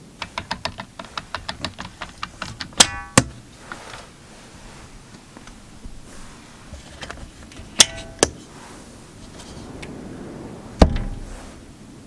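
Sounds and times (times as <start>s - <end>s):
window latch clicks: 0.0s - 3.4s.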